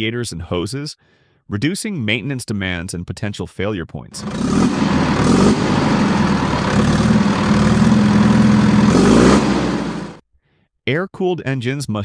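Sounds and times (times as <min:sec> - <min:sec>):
diesel engine clattering: 0:04.2 - 0:10.2.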